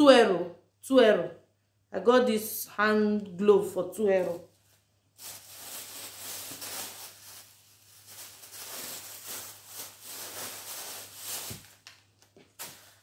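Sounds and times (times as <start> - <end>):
plastic bag rustling: 4.2 - 13.0.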